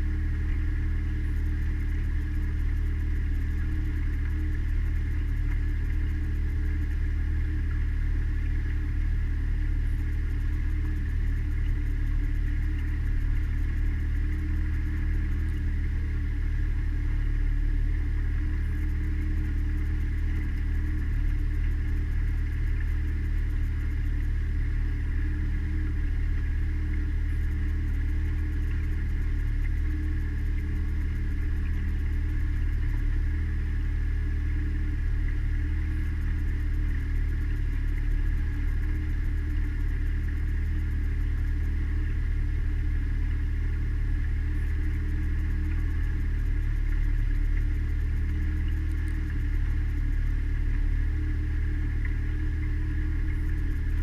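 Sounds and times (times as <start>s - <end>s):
outboard motor droning: 0.0s - 54.0s.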